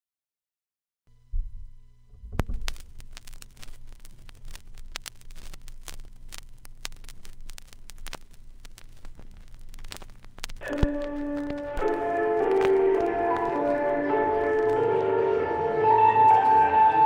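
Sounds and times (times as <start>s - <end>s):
radio static crackles: 1.1s - 15.5s
low hum and hiss: 1.1s - 17.0s
music with ringing tones: 10.6s - 17.0s.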